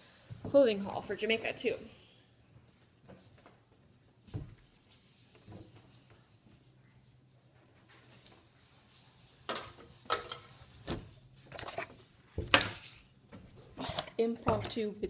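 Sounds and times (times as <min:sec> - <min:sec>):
rustling and knocking of dresses: 0:02.5 - 0:13.8.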